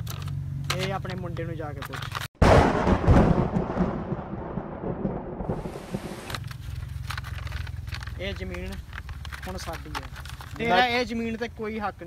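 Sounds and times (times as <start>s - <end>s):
thunder crack and rumble: 2.4s - 6.4s.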